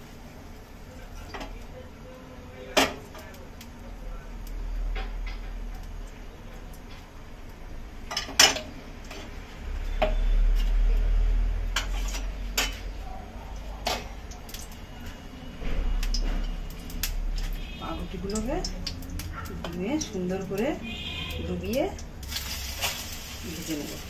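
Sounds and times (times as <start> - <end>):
metal spatula scraping pan: 11.7 - 12.8.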